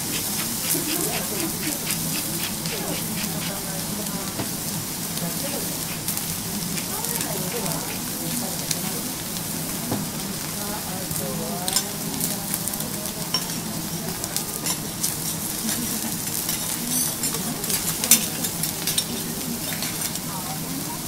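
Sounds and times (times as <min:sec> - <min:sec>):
steak sizzling on griddle: 0:00.0 - 0:21.0
metal spatulas clicking and scraping: 0:00.1 - 0:03.6, 0:14.6 - 0:20.2.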